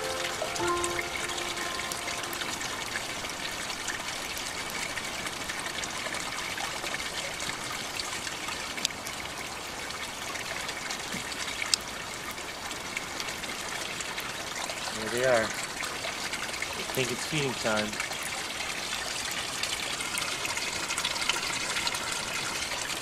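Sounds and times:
water trickling into tank: 0.0 - 23.0
sharp drips: 14.1 - 23.0.

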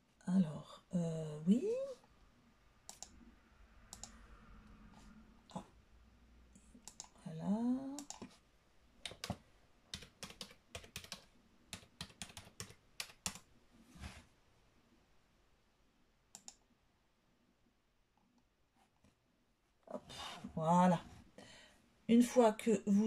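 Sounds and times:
keyboard keystrokes: 9.0 - 13.4.

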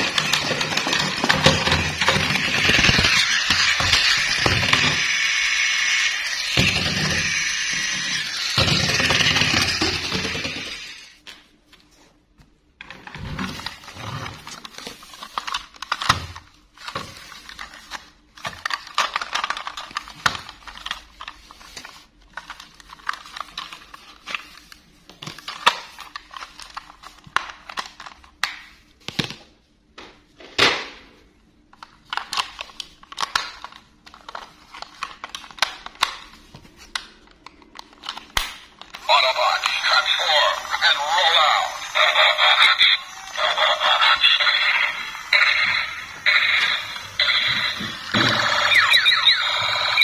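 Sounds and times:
plastic toy clicks and rubbing: 0.0 - 10.9.

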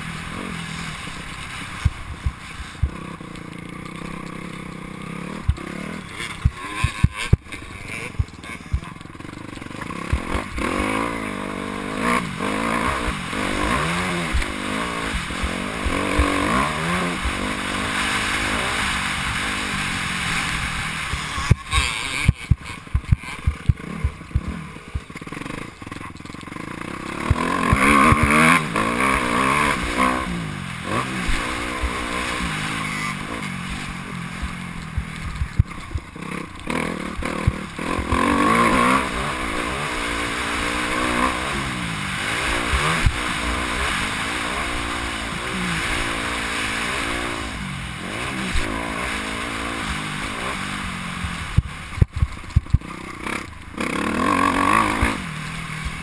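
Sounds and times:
motocross engine revving: 0.0 - 56.0.

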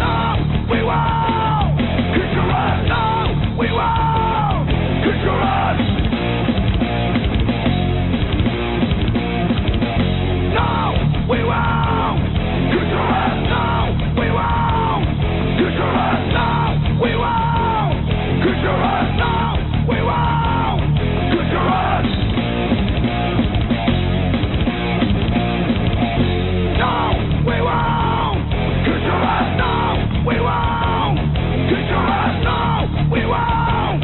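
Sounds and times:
shouted vocals: 0.0 - 5.9, 10.4 - 22.1, 26.7 - 34.0
electric guitars: 0.0 - 34.0
punk rock song: 0.0 - 34.0.

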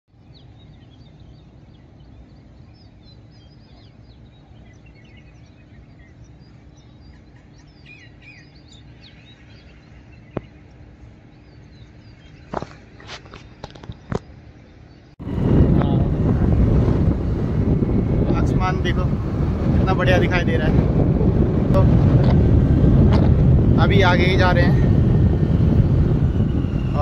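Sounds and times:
small birds chirping: 0.1 - 15.2
steady low rumble: 0.2 - 27.0.

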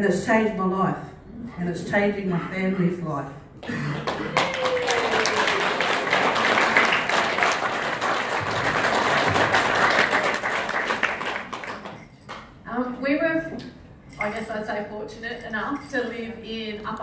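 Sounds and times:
audience applauding: 3.6 - 12.1.

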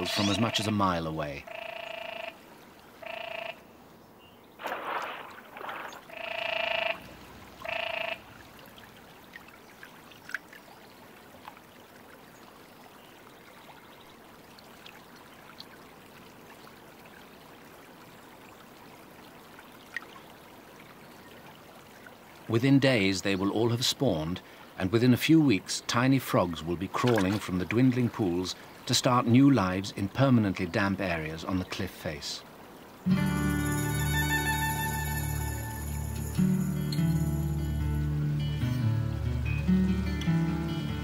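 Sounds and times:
tree frogs croaking: 0.0 - 25.0
trickling water with drips: 4.6 - 33.1.

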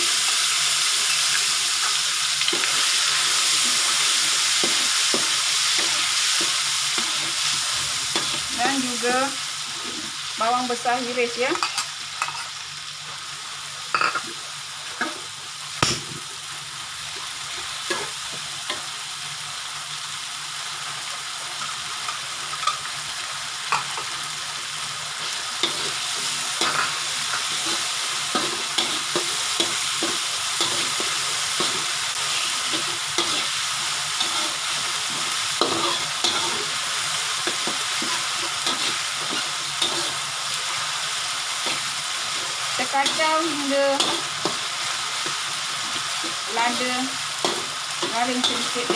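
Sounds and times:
onions sizzling in hot oil: 0.0 - 48.9
metal spatula scraping a wok: 26.6 - 40.3.

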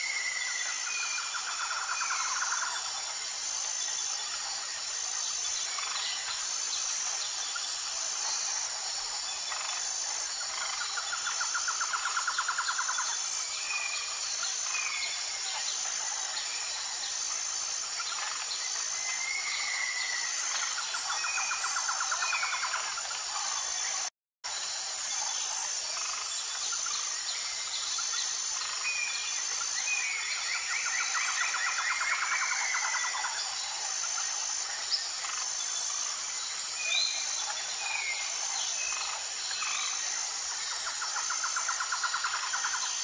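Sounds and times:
insect hiss: 0.0 - 43.0.

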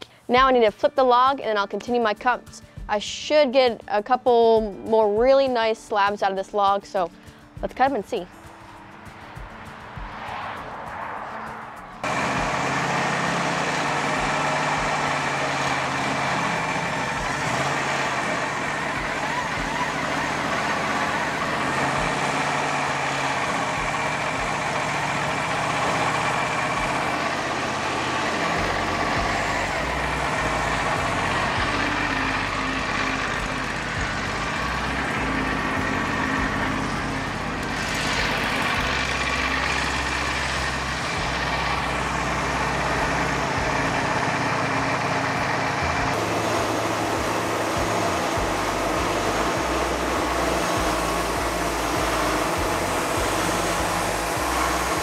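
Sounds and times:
portable sawmill running: 12.0 - 55.0.

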